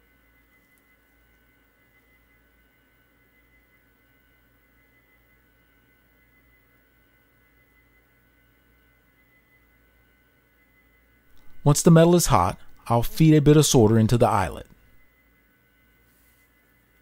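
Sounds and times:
faint electrical hum: 0.0 - 17.0
high-pitched whine: 0.0 - 17.0.

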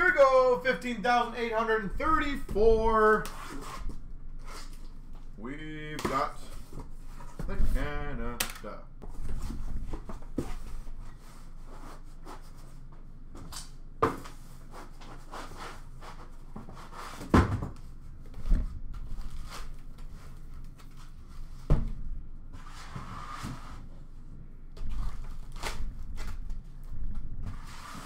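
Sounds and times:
cardboard rustling and scraping: 27.4 - 28.0.

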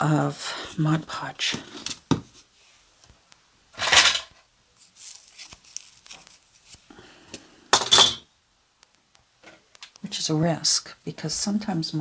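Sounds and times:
craft supplies clattering on table: 3.8 - 4.4.

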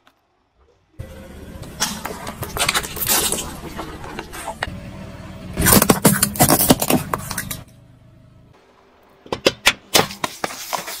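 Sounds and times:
tyre crushing brittle objects: 5.6 - 7.6.

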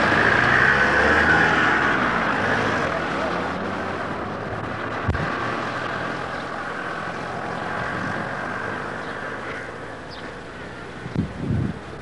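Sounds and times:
low bumps: 1.8 - 9.2
wind rumbling on microphone: 4.2 - 12.0.

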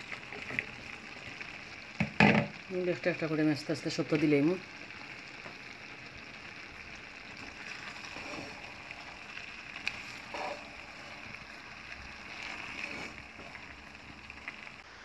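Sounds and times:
vegetables sizzling in a frying pan: 0.0 - 15.0
spatula stirring: 7.3 - 14.7.

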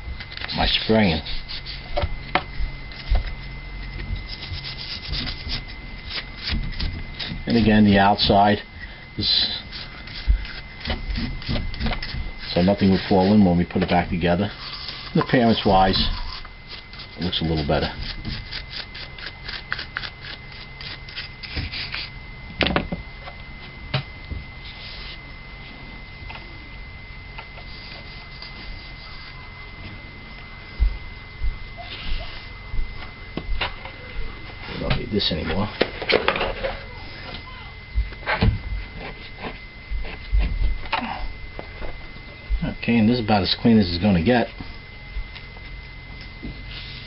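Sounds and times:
toothbrush scrubbing metal bowl: 0.4 - 2.0, 2.9 - 8.6, 9.2 - 22.1
rag rubbing: 2.9 - 8.5, 9.2 - 22.1.

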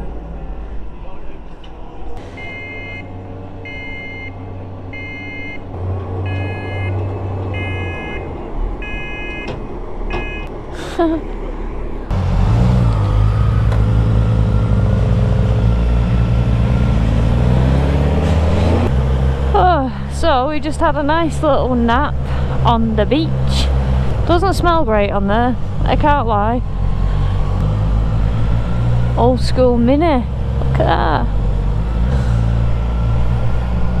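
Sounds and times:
low engine hum: 0.0 - 34.0
reversing alarm beeping: 2.2 - 5.6, 6.2 - 10.5.

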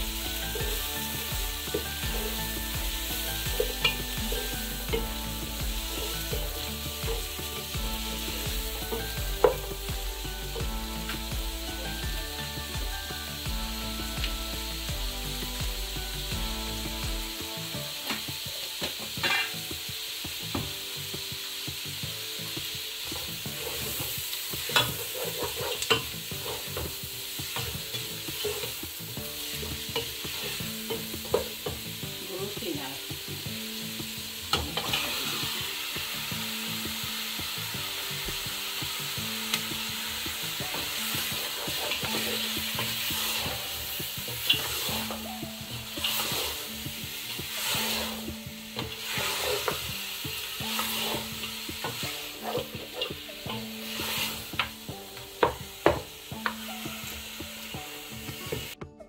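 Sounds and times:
soft tune of held notes: 0.0 - 25.0
food sizzling in hot oil: 0.0 - 58.8
utensil scraping a pan: 19.0 - 19.6, 23.0 - 31.8, 40.3 - 45.2, 45.8 - 46.8, 47.4 - 50.0, 50.6 - 54.8.

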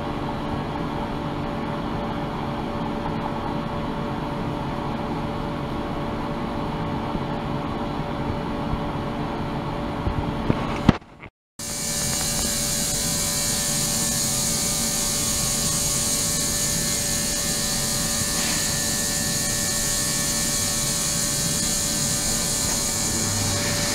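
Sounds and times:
ultrasonic cleaner humming: 11.6 - 23.9.

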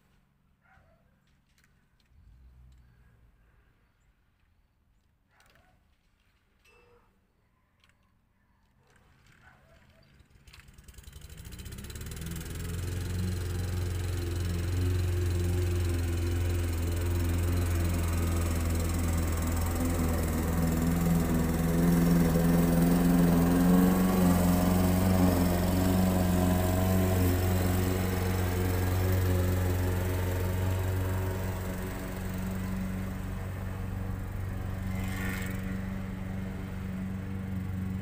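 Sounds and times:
lawn mower engine running: 10.5 - 38.0.

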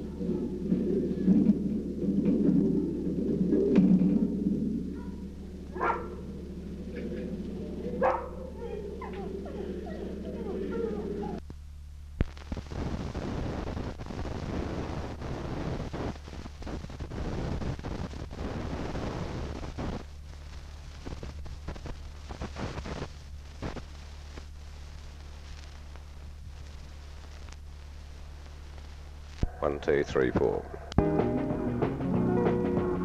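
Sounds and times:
crackling rumble: 0.0 - 33.0
steady low hum: 0.0 - 33.0.

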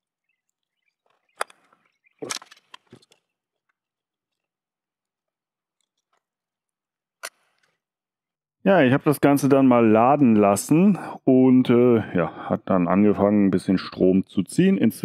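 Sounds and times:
plastic parts clicking and knocking: 1.0 - 4.4.

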